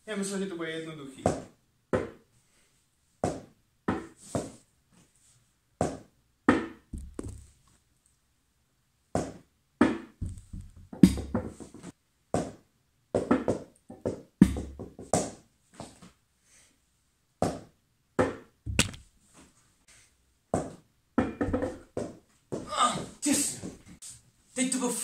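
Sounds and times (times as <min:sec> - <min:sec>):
small ball bouncing: 0:05.8 - 0:07.5, 0:09.2 - 0:11.5, 0:18.2 - 0:19.1, 0:20.6 - 0:22.1.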